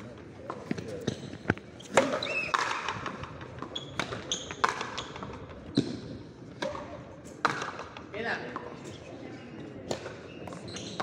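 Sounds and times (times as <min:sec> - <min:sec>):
ball hitting rackets and wall: 0:00.4 - 0:08.8, 0:09.8 - 0:11.0
brief high squeaks: 0:01.8 - 0:02.6.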